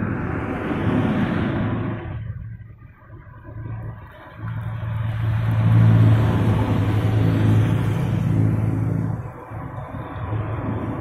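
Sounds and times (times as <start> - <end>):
cars approaching: 0.0 - 11.0
minibus driving past: 3.7 - 11.0.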